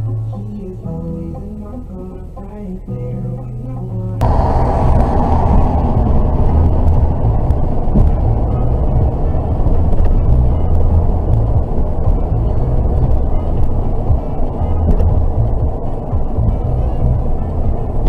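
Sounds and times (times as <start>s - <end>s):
car road and engine rumble: 4.2s - 18.0s.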